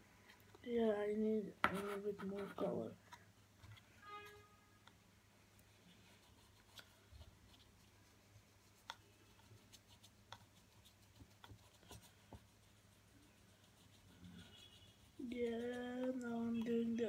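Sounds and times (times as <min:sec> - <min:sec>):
low steady hum: 0:00.0 - 0:17.0
paintbrush scratching on cardboard: 0:01.7 - 0:03.0, 0:05.7 - 0:17.0.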